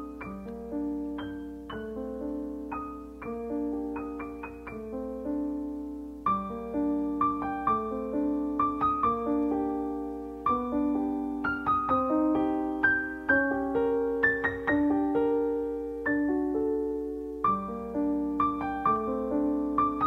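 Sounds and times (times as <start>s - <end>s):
slow solo piano piece: 0.0s - 20.0s.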